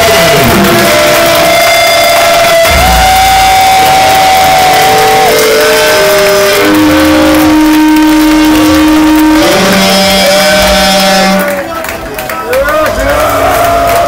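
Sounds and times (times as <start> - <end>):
distorted electric guitars: 0.0 - 11.7
drums and cymbals: 2.2 - 11.1.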